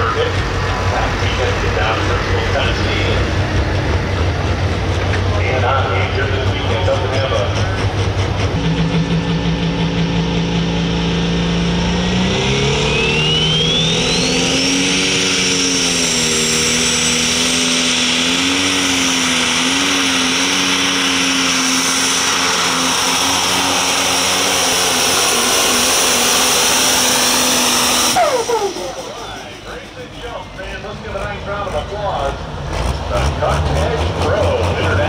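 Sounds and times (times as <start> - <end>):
diesel engine running at full power: 0.0 - 35.0
turbo whistle: 12.8 - 14.8, 28.0 - 29.5.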